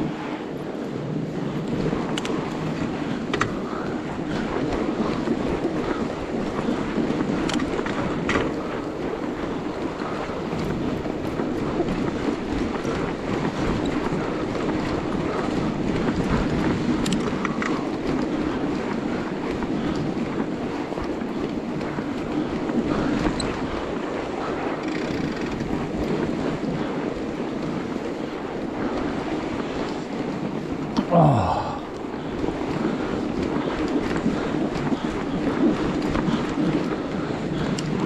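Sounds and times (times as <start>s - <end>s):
tyres and rollers rumbling on snow: 0.0s - 38.0s
wind on microphone: 0.0s - 38.0s.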